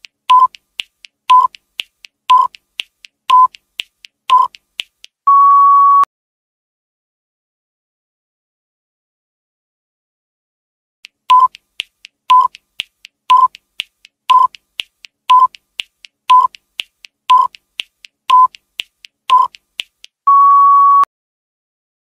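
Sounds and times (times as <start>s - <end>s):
faint ticks: 0.0s - 5.2s, 11.0s - 20.2s
short timer beeps: 0.3s - 0.6s, 1.3s - 1.6s, 2.3s - 2.6s, 3.3s - 3.6s, 4.3s - 4.6s, 11.3s - 11.6s, 12.3s - 12.6s, 13.3s - 13.6s, 14.3s - 14.6s, 15.3s - 15.6s, 16.3s - 16.6s, 17.3s - 17.6s, 18.3s - 18.6s, 19.3s - 19.6s
long steady beep: 5.3s - 6.1s, 20.3s - 21.1s.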